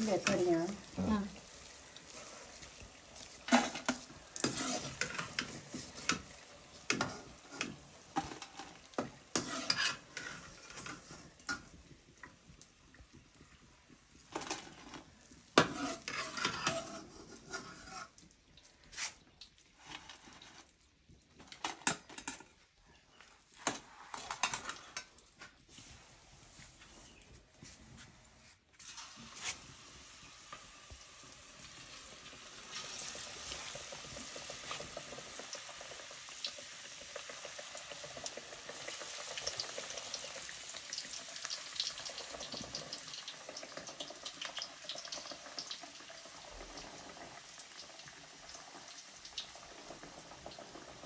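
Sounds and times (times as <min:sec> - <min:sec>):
hot oil sizzling: 0:00.0 - 0:26.9, 0:28.6 - 0:51.0
steel spoon scraping and clanking: 0:03.5 - 0:05.6, 0:09.3 - 0:11.1, 0:15.6 - 0:18.2.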